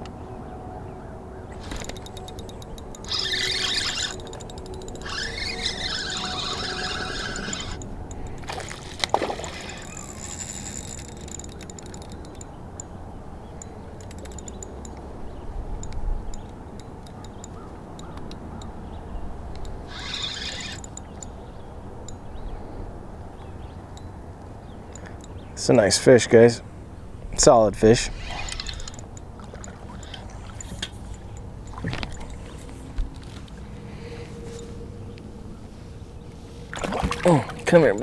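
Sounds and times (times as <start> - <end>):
wind and lake water: 0.0 - 38.0
fishing reel drag buzzing: 1.6 - 12.5, 19.6 - 21.3, 27.8 - 32.7.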